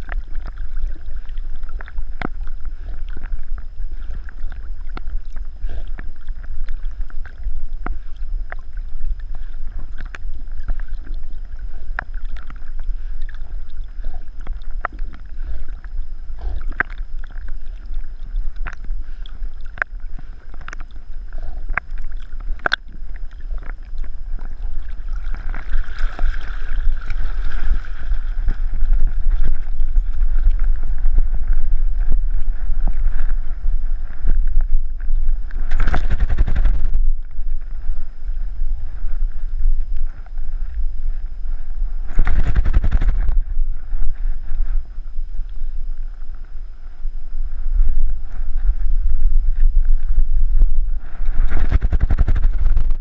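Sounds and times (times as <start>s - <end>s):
small ticks: 0.0s - 26.3s, 34.4s - 37.3s, 42.1s - 43.4s
low rumble: 0.0s - 53.0s
water sloshing and gurgling: 0.0s - 53.0s.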